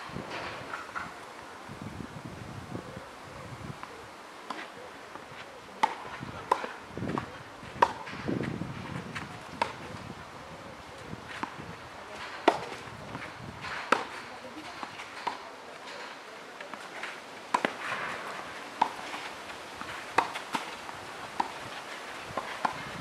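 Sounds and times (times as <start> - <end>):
tennis ball pops: 20.2 - 20.8.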